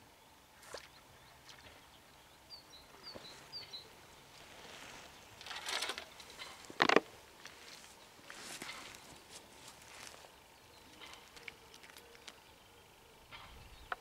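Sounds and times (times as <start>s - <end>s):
small bird chirping: 0.7s - 5.2s
rustle: 2.8s - 14.0s.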